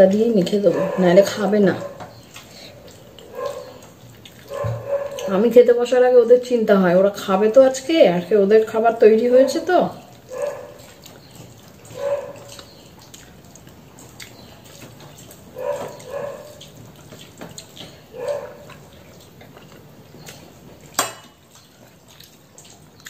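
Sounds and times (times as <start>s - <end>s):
dog whining: 3.2s - 5.4s.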